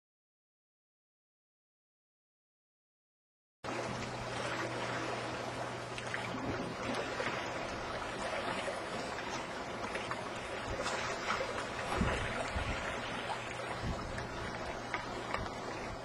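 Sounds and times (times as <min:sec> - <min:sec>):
low hum: 0:03.7 - 0:16.0
water lapping and splashing: 0:03.7 - 0:16.0.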